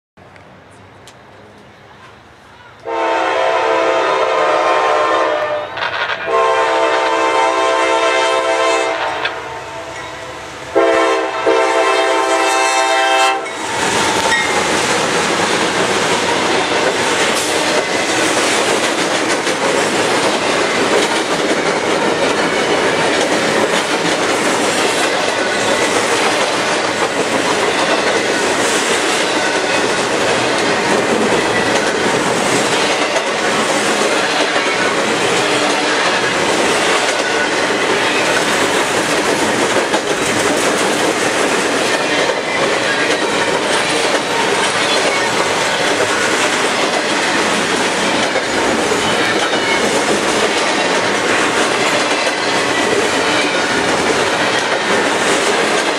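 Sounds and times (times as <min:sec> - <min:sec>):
train cars rumbling on rails: 0:00.2 - 0:55.9
locomotive air horn blasts: 0:02.8 - 0:10.0, 0:10.7 - 0:13.6.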